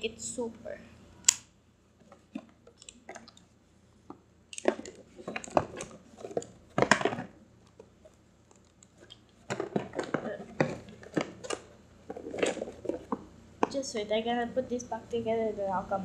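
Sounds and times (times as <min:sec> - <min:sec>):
cardboard box rustling: 0:09.4 - 0:13.2.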